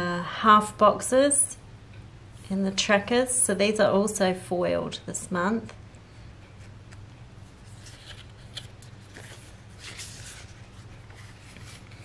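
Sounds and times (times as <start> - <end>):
paper stickers rustling: 7.4 - 12.0.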